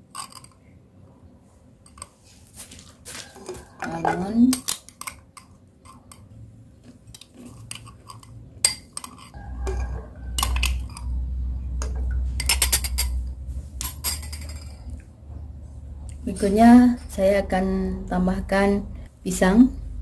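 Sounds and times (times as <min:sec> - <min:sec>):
metal spoon clinking glass bowl: 0:07.4 - 0:11.2, 0:11.8 - 0:15.0
low rumble: 0:09.4 - 0:20.0.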